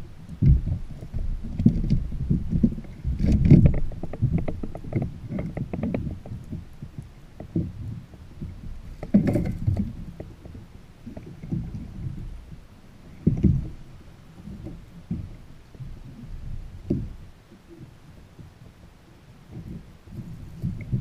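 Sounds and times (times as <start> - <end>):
waves slapping kayak hull: 0.0 - 21.0.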